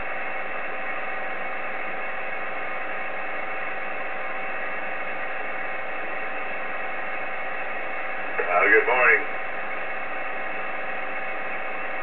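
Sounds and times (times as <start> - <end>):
radio static hiss: 3.2 - 12.0.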